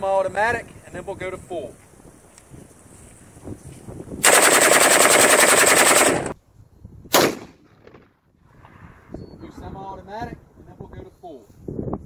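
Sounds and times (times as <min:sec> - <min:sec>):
rifle firing automatic burst: 0:04.2 - 0:06.4
single loud gunshot: 0:07.1 - 0:08.1.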